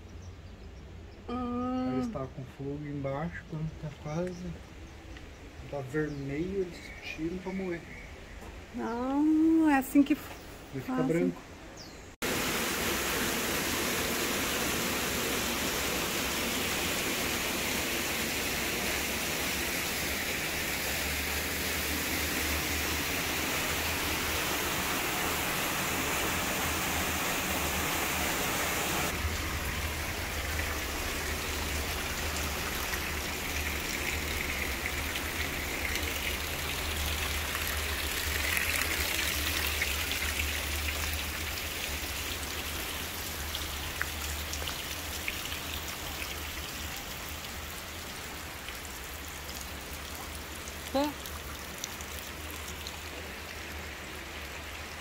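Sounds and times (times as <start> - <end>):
running water hiss: 1.3 - 55.0
water splashing through waterwheel: 12.2 - 55.0.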